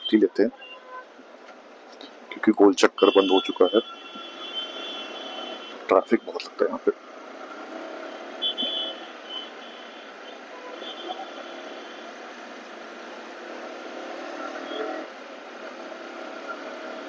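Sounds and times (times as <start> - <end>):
motorcycle engine: 6.8 - 17.0.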